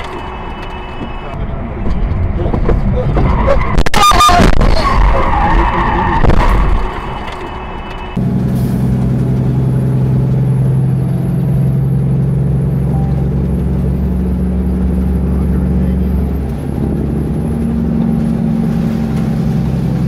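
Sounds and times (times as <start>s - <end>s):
tyre and road noise: 0.0s - 20.0s
low engine hum: 7.0s - 20.0s.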